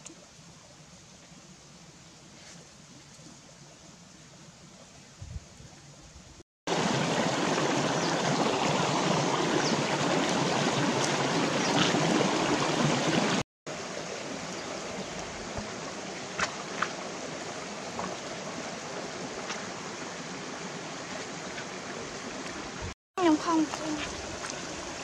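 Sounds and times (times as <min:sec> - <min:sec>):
stream water over rocks: 0:06.7 - 0:25.0.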